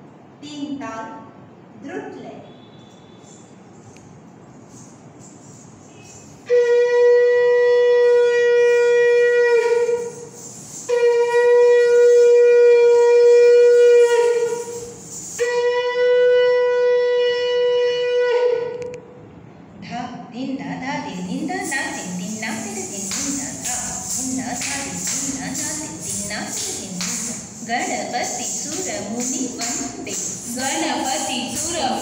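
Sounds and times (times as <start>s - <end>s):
conch shell blasts: 2.4s - 3.5s, 5.9s - 18.3s.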